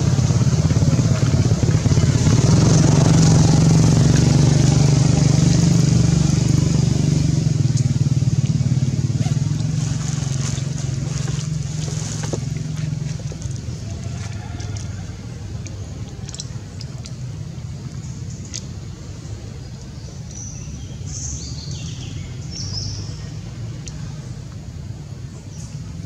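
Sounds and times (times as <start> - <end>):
motor vehicle engine hum: 0.0 - 26.0.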